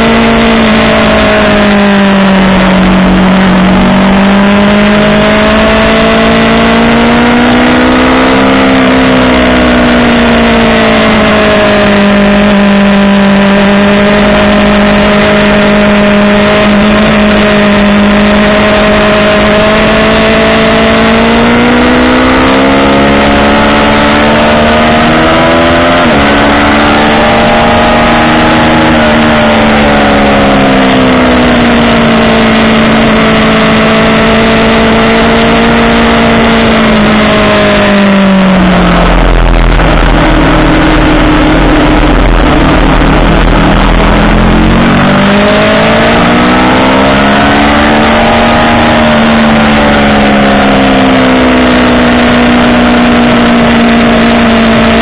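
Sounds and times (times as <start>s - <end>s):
motorcycle engine revving: 0.0s - 55.0s
wind rush: 36.5s - 48.1s.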